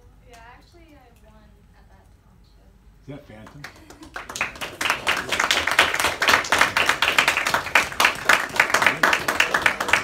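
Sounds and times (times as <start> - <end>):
crowd applauding: 3.5 - 10.0.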